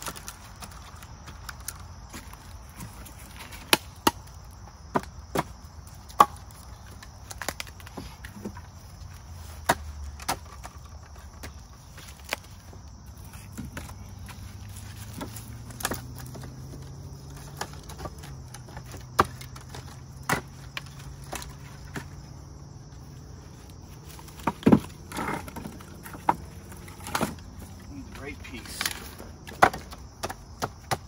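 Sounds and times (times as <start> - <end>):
firewood knocking together: 15.0 - 22.2, 24.1 - 31.0.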